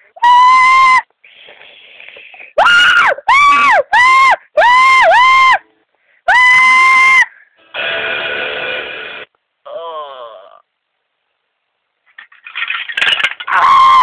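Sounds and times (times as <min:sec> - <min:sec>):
high-pitched voice screaming: 0:13.5 - 0:14.0.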